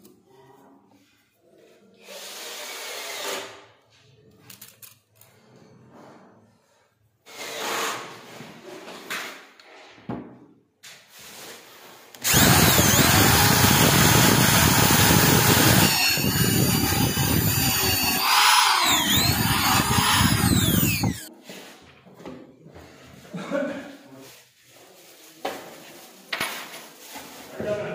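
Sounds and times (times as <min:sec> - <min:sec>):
electric drill boring wood: 0:12.2 - 0:21.3.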